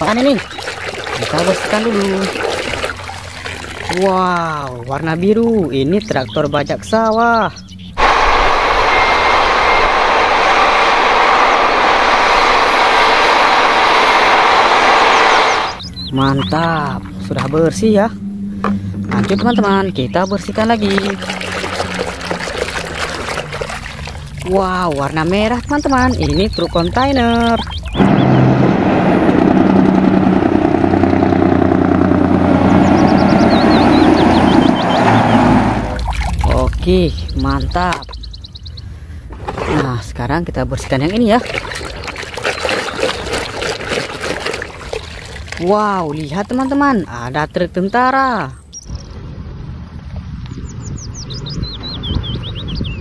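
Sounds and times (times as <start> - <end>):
tractor engine running under load: 20.8 - 36.0.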